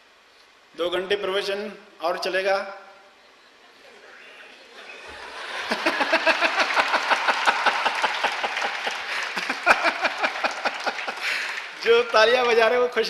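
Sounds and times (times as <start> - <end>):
audience clapping: 4.8 - 13.0
person laughing: 4.9 - 11.4.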